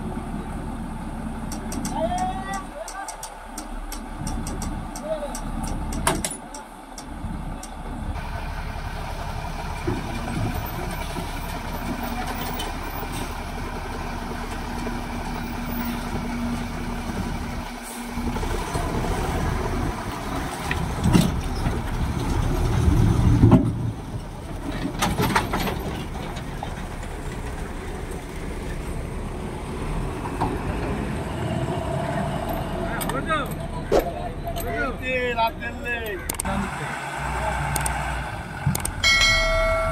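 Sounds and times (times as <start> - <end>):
truck diesel engine under load: 0.0 - 39.9.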